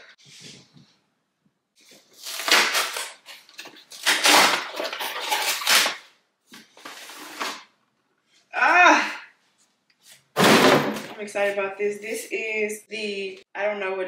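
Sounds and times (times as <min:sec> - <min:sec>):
packaging rustling: 0:01.8 - 0:07.8.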